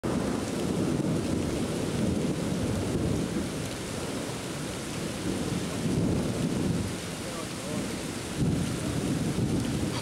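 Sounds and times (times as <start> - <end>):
steady rain hiss: 0.0 - 10.0
thunder rumbling: 0.0 - 10.0.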